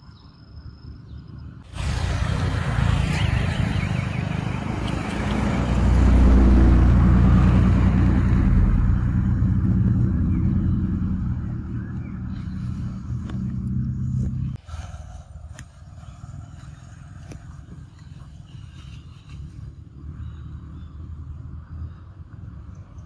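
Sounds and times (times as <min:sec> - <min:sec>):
vehicle engine running: 0:01.6 - 0:14.6.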